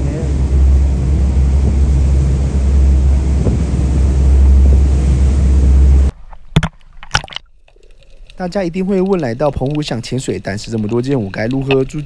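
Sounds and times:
motorboat engine running: 0.0s - 6.1s
wind buffeting microphone: 0.0s - 6.1s
water rushing past hull: 0.0s - 12.0s.

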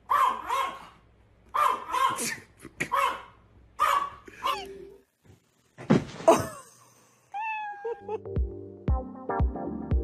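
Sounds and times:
small dog barking: 0.1s - 4.7s.

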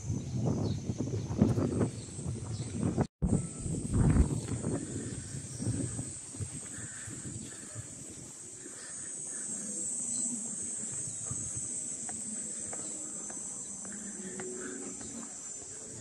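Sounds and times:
insects buzzing high-pitched: 3.2s - 16.0s.

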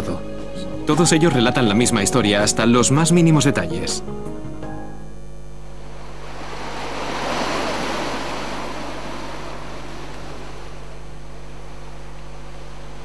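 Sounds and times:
sea waves breaking around rock: 5.8s - 13.0s.

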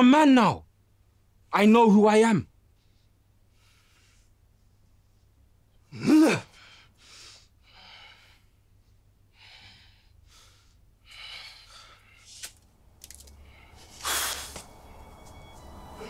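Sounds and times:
man breathing heavily: 2.8s - 4.5s, 6.1s - 12.5s, 13.3s - 14.8s
loud rush of breath: 13.4s - 14.7s.

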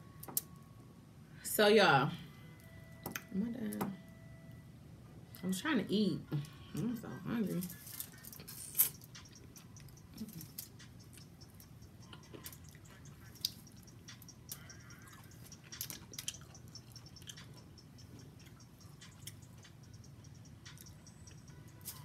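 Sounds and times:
person chewing and smacking: 8.1s - 22.0s.

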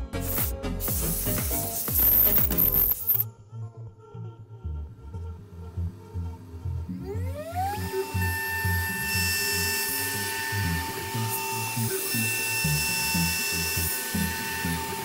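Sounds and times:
background music with beat: 0.0s - 3.2s
hiss of metal cutting: 0.2s - 3.2s, 9.0s - 15.0s
router spindle high-pitched whine: 7.0s - 15.0s.

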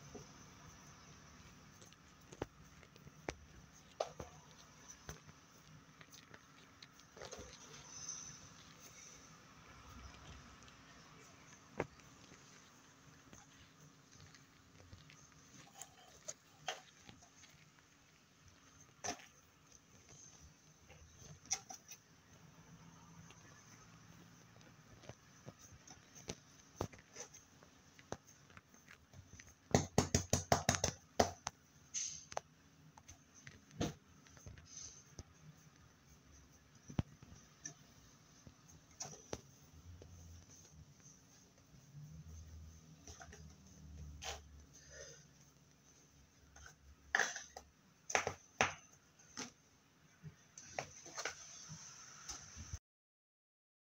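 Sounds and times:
slime rustle: 0.2s - 29.7s.

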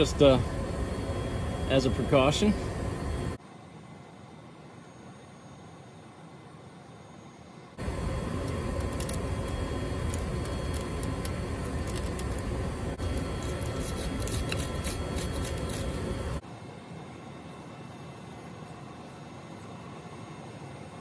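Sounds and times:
tools scraping metal threads: 13.0s - 16.4s.

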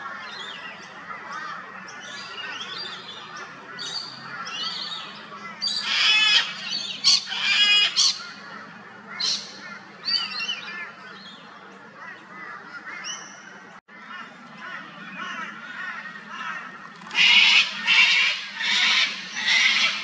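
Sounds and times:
cockatoo screeching: 5.6s - 8.3s, 17.1s - 20.0s.

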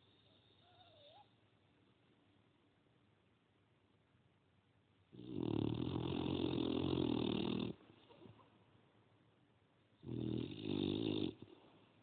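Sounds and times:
dog snoring: 5.1s - 7.8s, 10.0s - 11.6s.

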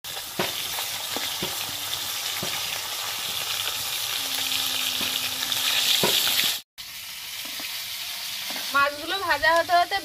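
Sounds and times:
fish sizzling in hot oil: 0.0s - 10.0s.

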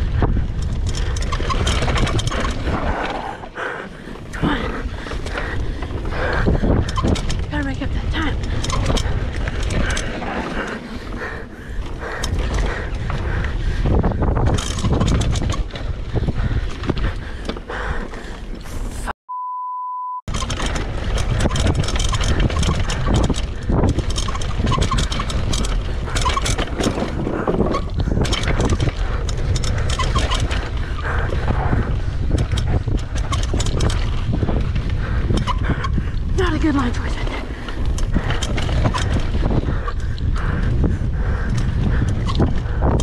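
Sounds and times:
wind rush: 0.0s - 17.4s, 20.3s - 43.0s
bike tyres and frame rattling: 0.0s - 19.1s, 20.3s - 43.0s
censor bleep: 19.3s - 20.3s.

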